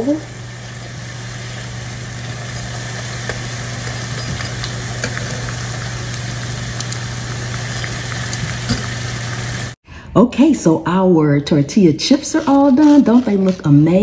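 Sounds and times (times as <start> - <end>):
chips sizzling in oil: 0.0 - 9.8.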